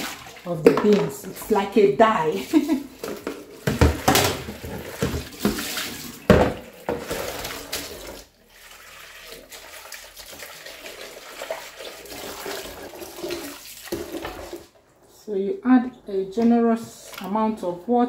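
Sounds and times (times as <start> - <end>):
tap water running into bowl: 3.0 - 14.8.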